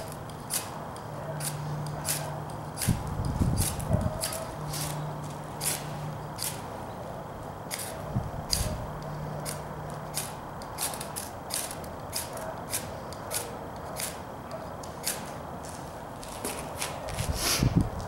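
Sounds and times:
knife scraping a ferro rod: 0.0 - 6.7, 7.7 - 15.4.

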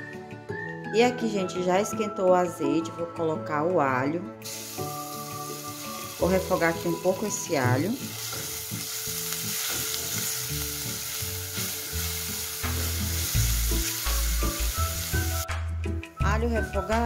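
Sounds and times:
garlic sizzling in hot oil: 4.4 - 15.5.

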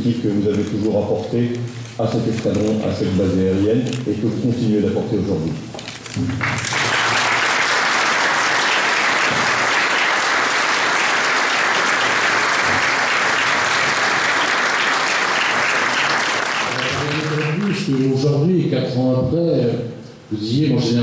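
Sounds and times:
audience applauding: 6.3 - 18.4.

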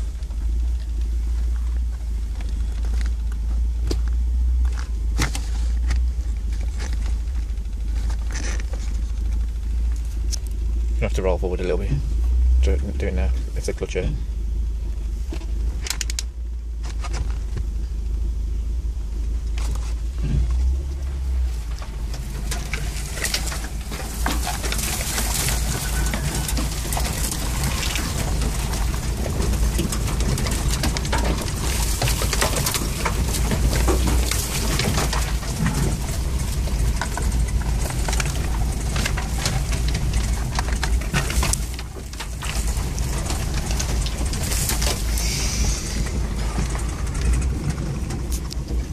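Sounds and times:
low engine drone: 0.0 - 48.9
vehicle knocks and rattles: 0.0 - 48.9.

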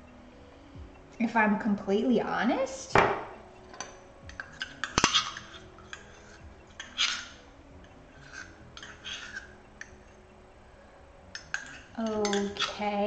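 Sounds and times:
metal spoon scraping metal cup: 3.8 - 7.4, 8.1 - 10.0, 11.3 - 13.0.

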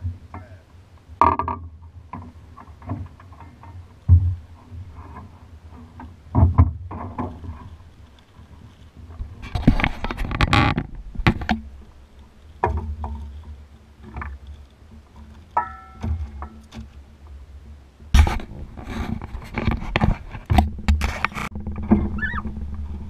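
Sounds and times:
handling knocks and scrapes in boat: 1.2 - 23.0
wind noise on microphone: 9.0 - 11.8, 17.5 - 23.0.

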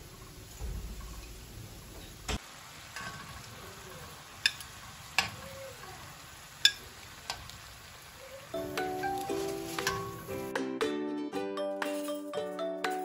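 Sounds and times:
pastries sizzling in oil: 0.0 - 10.5
metal tongs clicking against pan: 4.4 - 5.4, 6.6 - 7.6.

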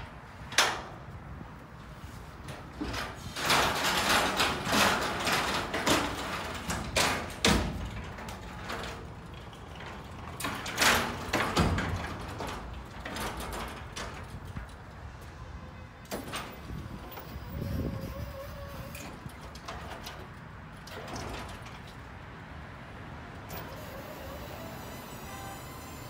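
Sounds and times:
clanks and knocks: 2.5 - 14.9, 16.0 - 22.1
metal frame rattling: 2.8 - 14.9
caster wheels rolling on metal: 2.9 - 14.9.

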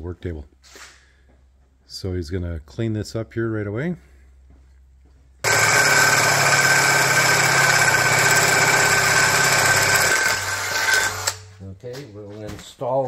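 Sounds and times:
abrasive disc grinding steel: 5.4 - 11.4
drill motor whine: 5.4 - 11.4.

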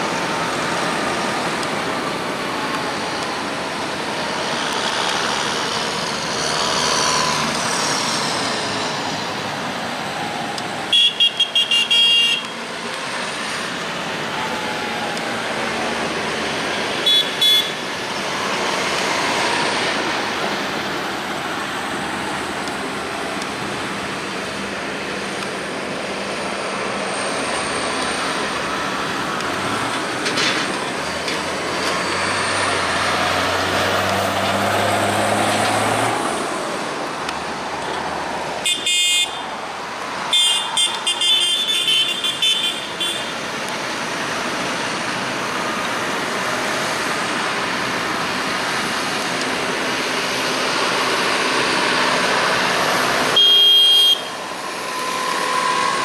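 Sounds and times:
tractor diesel engines: 0.0 - 56.0
vehicle horn toots: 10.9 - 12.5, 17.0 - 17.8, 38.6 - 39.4, 40.3 - 43.3, 53.4 - 54.4
tyres rolling on tarmac: 17.8 - 38.6.

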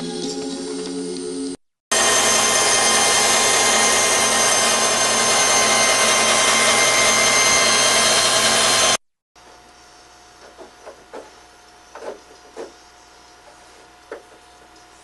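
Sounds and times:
band saw cutting wood: 1.9 - 9.0.

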